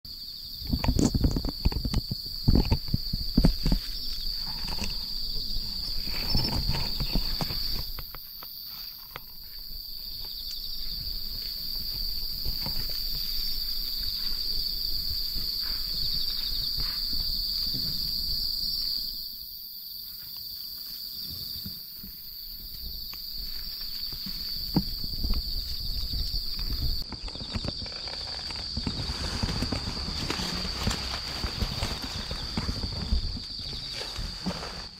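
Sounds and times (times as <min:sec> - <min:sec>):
high-pitched insect chorus: 0:00.1 - 0:34.9
leaves rustling: 0:02.3 - 0:17.1, 0:23.3 - 0:34.9.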